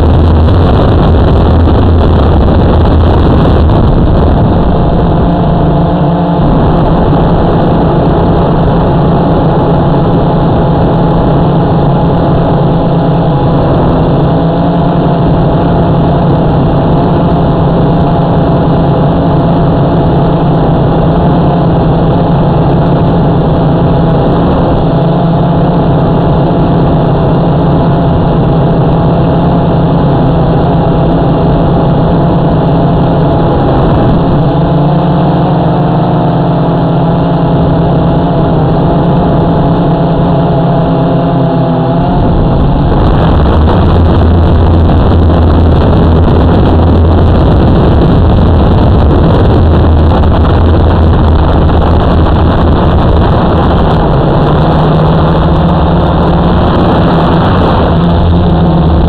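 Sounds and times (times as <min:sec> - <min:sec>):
deep hum: 0:00.0 - 0:59.0
rough rushing sound: 0:00.0 - 0:59.0.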